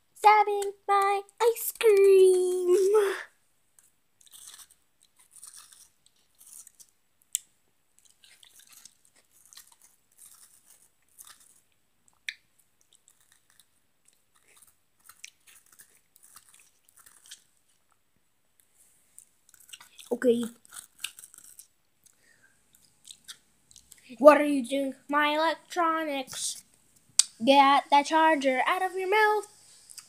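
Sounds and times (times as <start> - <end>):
chewing and crunching: 3.8 - 18.0, 19.2 - 24.1.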